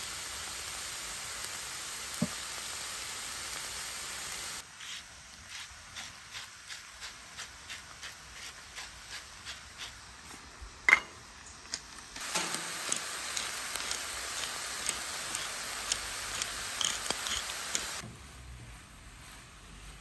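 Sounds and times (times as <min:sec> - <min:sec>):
vegetables sizzling in a pan: 0:00.0 - 0:04.6, 0:12.2 - 0:18.0
salt mill grinding: 0:12.2 - 0:18.0.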